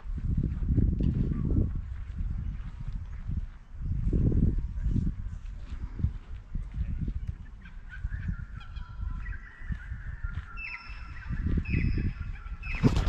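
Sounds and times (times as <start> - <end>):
bird calling: 7.4 - 13.0.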